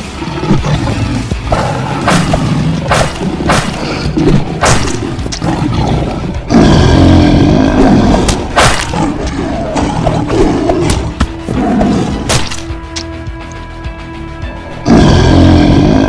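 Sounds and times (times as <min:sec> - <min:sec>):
big cat growls: 0:00.0 - 0:12.3
big cat roaring: 0:00.0 - 0:12.3, 0:14.8 - 0:16.0
background music: 0:00.0 - 0:16.0
sharp hits: 0:01.4 - 0:05.4, 0:08.2 - 0:09.2.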